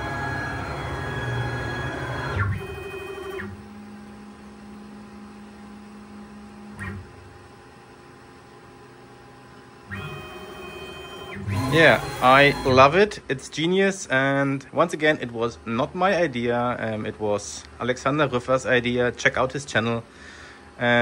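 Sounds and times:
motors whining: 0.0 - 5.5, 6.4 - 7.4, 9.9 - 13.1
machine humming: 0.0 - 21.0.

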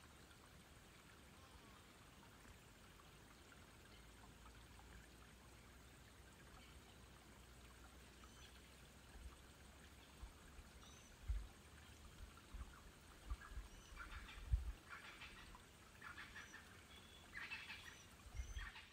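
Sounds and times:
faint outdoor hiss: 0.0 - 18.9
soft low thumps: 11.2 - 11.5.

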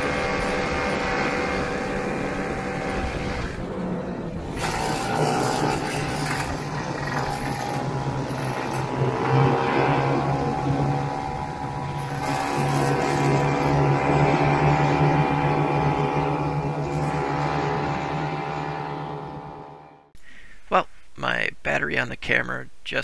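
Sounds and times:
snowmobile engine running: 0.0 - 20.1.

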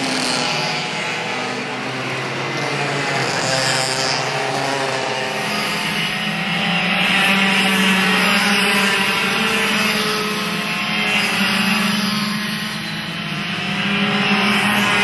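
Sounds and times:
racing kart engines revving: 0.0 - 15.0.

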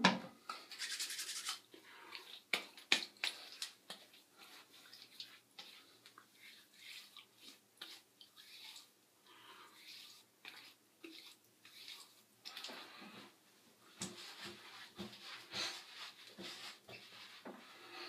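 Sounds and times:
hands rubbing face: 0.7 - 1.6.

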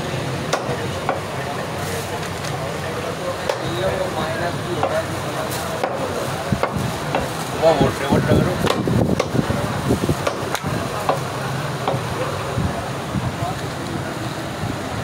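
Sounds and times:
meat cleaver chopping on wood: 0.5 - 1.3, 3.4 - 3.8, 4.8 - 5.1, 5.8 - 7.4, 8.6 - 9.4, 10.1 - 12.1.

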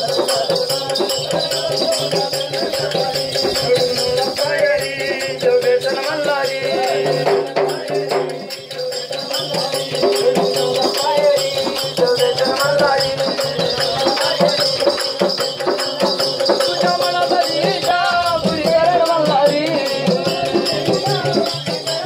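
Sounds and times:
jingling rattle percussion: 0.0 - 22.0.

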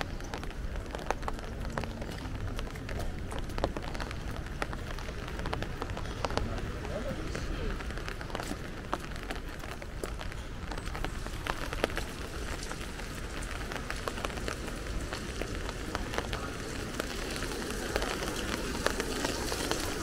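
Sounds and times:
light rain on wet paving: 0.0 - 20.0.

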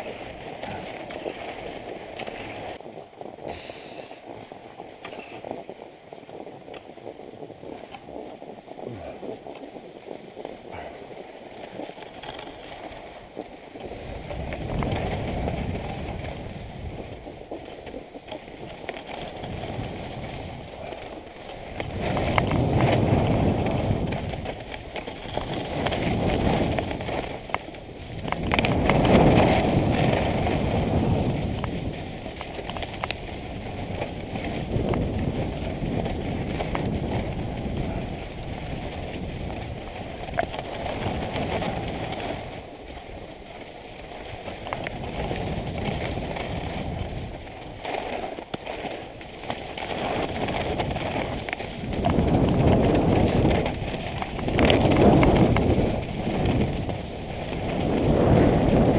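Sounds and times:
skis scraping over snow: 0.0 - 58.9
wind noise on microphone: 0.0 - 58.9.

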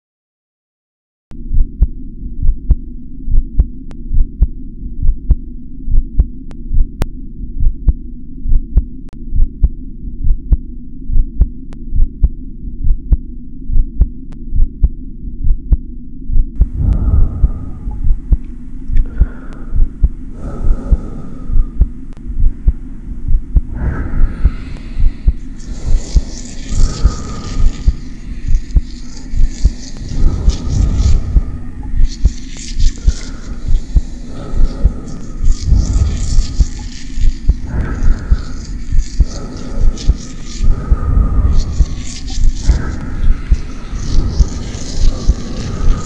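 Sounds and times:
low throbbing hum: 1.3 - 46.0
rustling hiss: 24.1 - 46.0.

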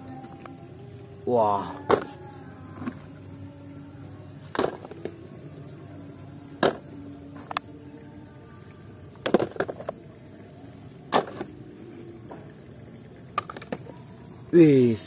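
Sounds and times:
low steady background noise: 0.0 - 15.0
toy vehicles knocking: 9.1 - 10.0, 13.3 - 14.1.

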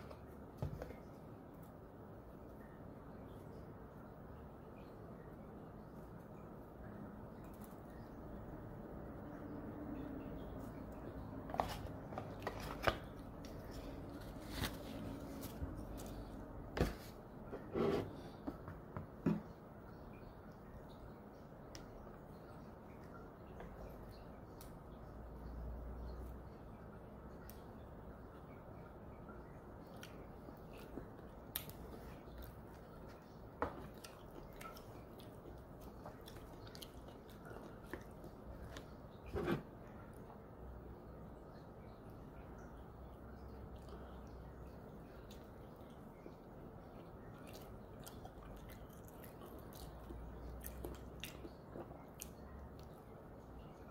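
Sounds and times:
soft chewing: 9.9 - 18.8, 29.4 - 40.4, 41.9 - 53.9.

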